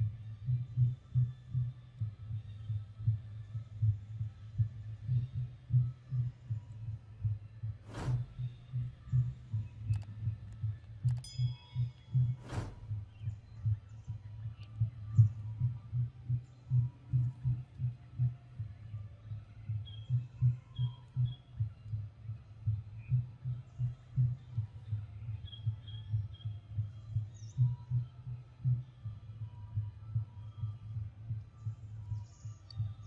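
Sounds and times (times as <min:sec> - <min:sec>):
faint bird chirps: 0:19.7 - 0:21.9, 0:23.0 - 0:28.9.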